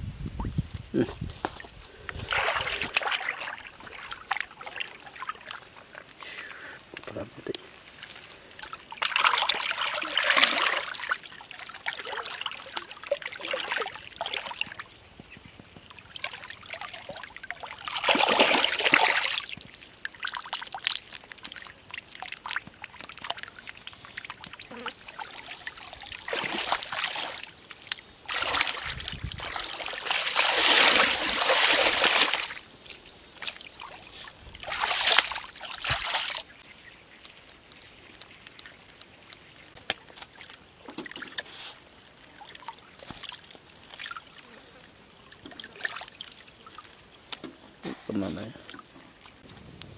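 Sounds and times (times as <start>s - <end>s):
hands sloshing in muddy water: 2.1s - 6.0s, 8.0s - 14.8s, 16.2s - 19.6s, 24.2s - 27.6s, 28.2s - 32.6s, 33.4s - 36.6s
water trickling off hands: 15.8s - 44.4s.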